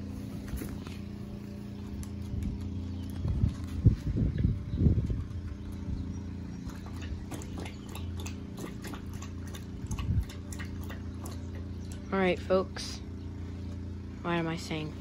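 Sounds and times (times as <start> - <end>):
low steady hum: 0.0 - 15.0
puppy lapping water from metal bowl: 6.6 - 12.1.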